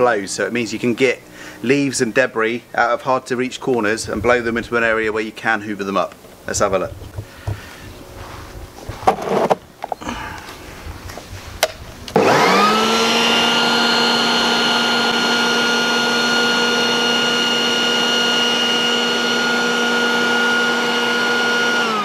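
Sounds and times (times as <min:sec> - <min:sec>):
leaf blower motor whine: 0:09.4 - 0:10.6, 0:12.1 - 0:22.0.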